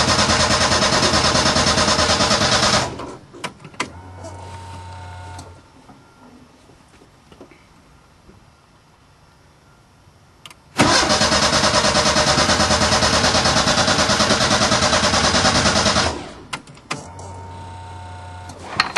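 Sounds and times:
car engine cranking on starter: 0:00.0 - 0:05.5, 0:10.8 - 0:18.9.

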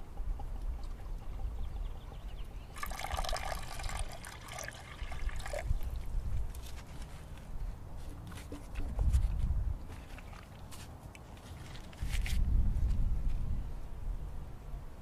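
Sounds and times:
water pouring into clay pot: 0:02.7 - 0:06.1.

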